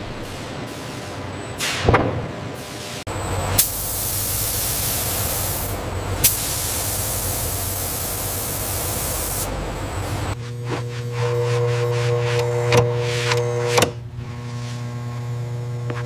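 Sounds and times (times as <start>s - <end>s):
spray nozzle hissing: 3.6s - 9.5s.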